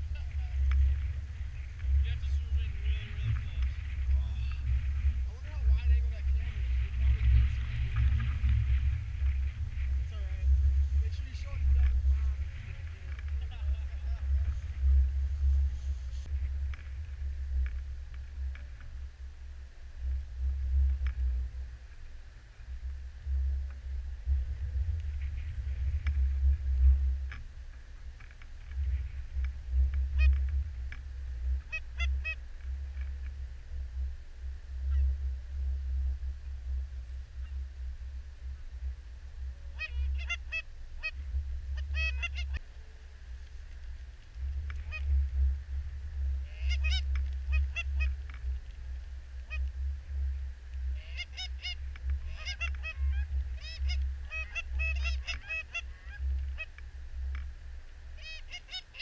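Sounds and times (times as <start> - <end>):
low wind rumble on microphone: 0.0 - 59.0
goose honking: 31.7 - 32.4, 39.7 - 41.2, 41.8 - 42.6, 44.8 - 45.1, 46.4 - 48.2, 51.0 - 56.7, 58.2 - 59.0.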